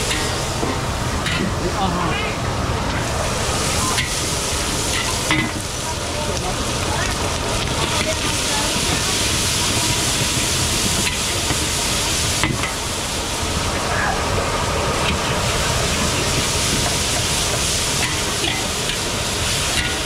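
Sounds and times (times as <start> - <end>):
ladle scraping a wok: 0.0 - 0.6, 2.9 - 5.8
seafood sizzling in a wok: 0.0 - 20.0.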